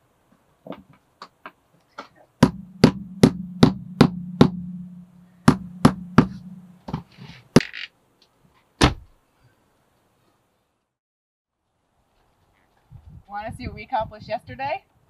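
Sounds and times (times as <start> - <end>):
rubber mallet tapping flooring: 5.5 - 7.1.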